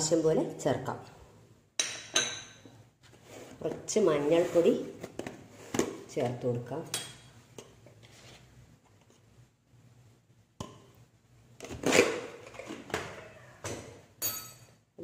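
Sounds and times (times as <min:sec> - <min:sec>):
spoon clinking on steel kitchenware: 0:14.2 - 0:14.8.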